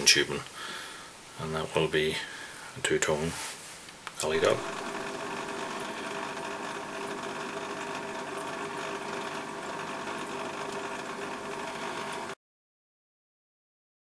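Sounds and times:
small electric motor humming: 0:04.4 - 0:12.4.

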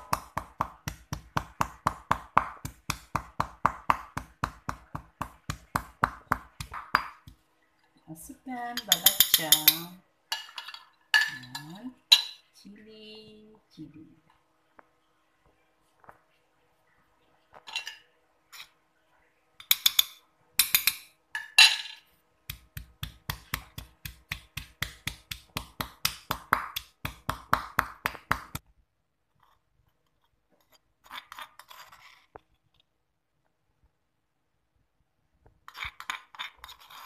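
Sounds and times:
stone pestle pounding in mortar: 0:00.0 - 0:07.4, 0:22.5 - 0:28.6.

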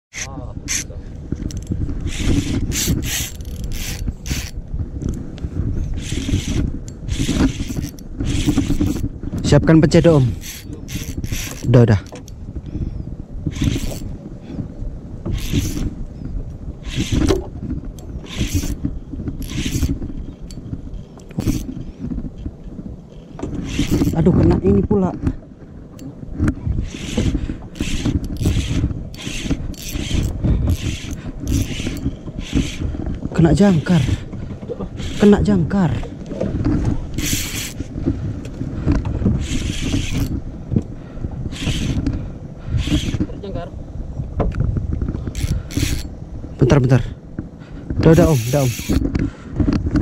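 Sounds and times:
fishing reel cranking: 0:00.1 - 0:04.6, 0:06.0 - 0:09.1, 0:09.9 - 0:12.4, 0:13.5 - 0:14.1, 0:15.3 - 0:15.9, 0:18.2 - 0:18.8, 0:19.4 - 0:21.8, 0:23.1 - 0:24.3, 0:26.8 - 0:32.9, 0:34.9 - 0:36.1, 0:37.2 - 0:37.9, 0:39.4 - 0:40.4, 0:41.5 - 0:42.1, 0:42.8 - 0:43.2, 0:45.3 - 0:46.1, 0:48.0 - 0:49.1
wind rumble on microphone: 0:00.1 - 0:50.0.

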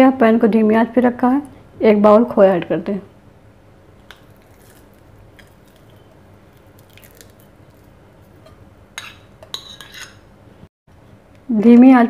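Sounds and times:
soft squishing and crumbling: 0:04.0 - 0:08.5.

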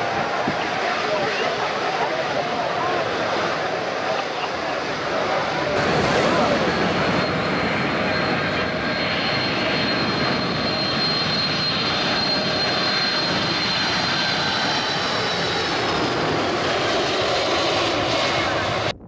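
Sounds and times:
jet engines on approach: 0:00.0 - 0:19.0
high engine whine falling in pitch: 0:05.7 - 0:16.5.

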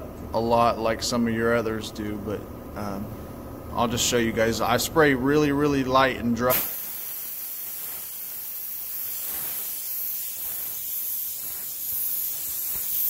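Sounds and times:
paint spray gun hissing: 0:06.5 - 0:13.0.

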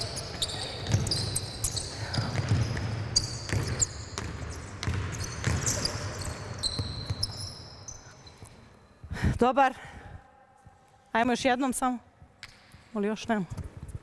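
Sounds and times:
sneakers squeaking: 0:00.0 - 0:09.0
basketball bouncing on hardwood: 0:02.2 - 0:05.8.

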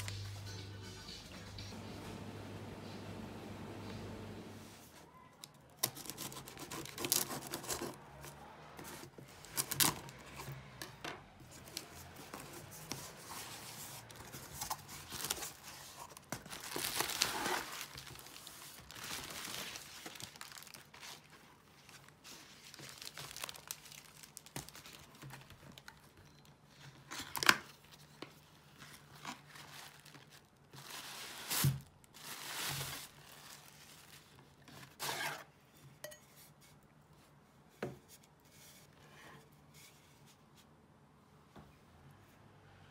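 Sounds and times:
bubble wrap rustling: 0:04.8 - 0:10.6, 0:11.4 - 0:26.2, 0:26.8 - 0:35.4
tape tearing: 0:05.7 - 0:08.2, 0:09.1 - 0:10.6, 0:14.0 - 0:21.3, 0:34.8 - 0:35.5
knife slitting packing tape: 0:05.8 - 0:08.0.

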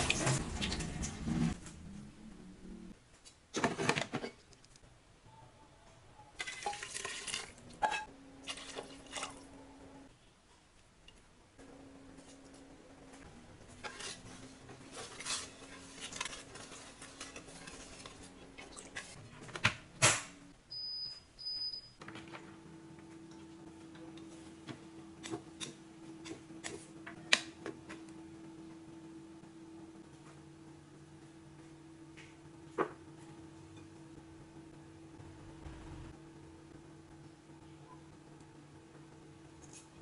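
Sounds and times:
paddle stirring rice in pot: 0:13.8 - 0:19.2.

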